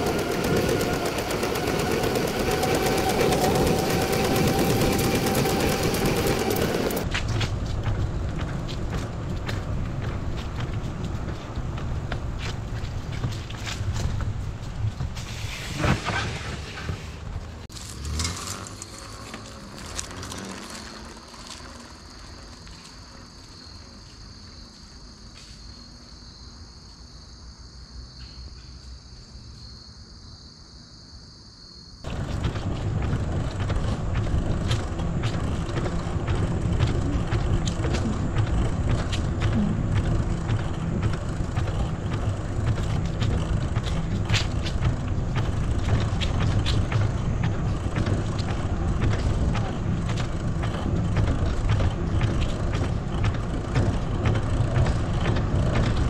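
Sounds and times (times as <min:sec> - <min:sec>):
bicycle ticks and rattles: 0:00.0 - 0:15.6, 0:16.7 - 0:25.6, 0:32.0 - 0:56.0
low rumble of riding noise: 0:00.0 - 0:24.9, 0:32.0 - 0:56.0.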